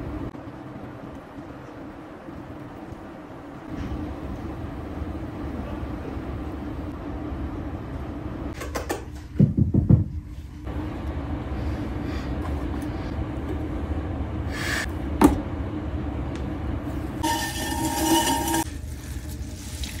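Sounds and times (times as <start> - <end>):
pottery wheel humming: 10.0 - 20.0
wet clay squealing on metal: 17.2 - 18.7.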